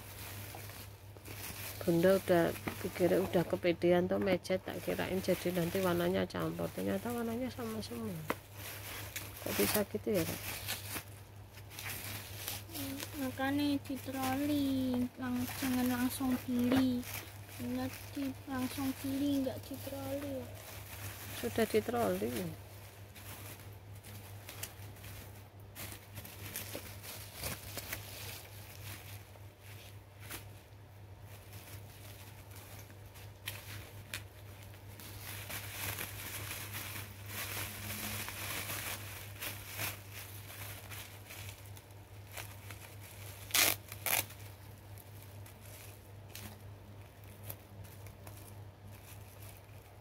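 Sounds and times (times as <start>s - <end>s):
bubble wrap crinkling: 0.0s - 50.0s
low steady hum: 0.0s - 50.0s
bubble wrap snaps: 31.4s - 50.0s.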